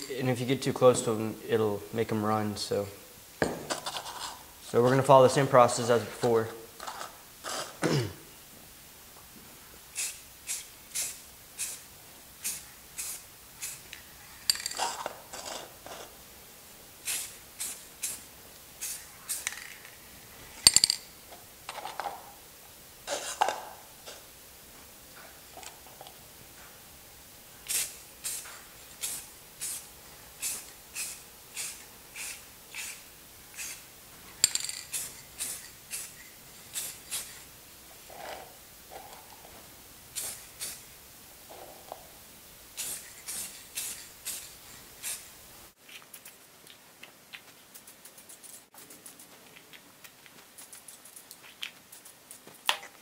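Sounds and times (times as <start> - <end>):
can knocking on table: 3.4 - 3.8
aerosol spray can hissing: 9.9 - 14.7, 17.0 - 19.6, 27.6 - 33.9, 34.5 - 37.5, 40.1 - 40.9, 42.7 - 45.4
spray can rattle: 9.9 - 16.1, 17.0 - 20.0, 20.6 - 21.1, 27.6 - 33.0, 33.6 - 33.8, 34.4 - 37.5, 40.1 - 40.9, 42.7 - 45.3.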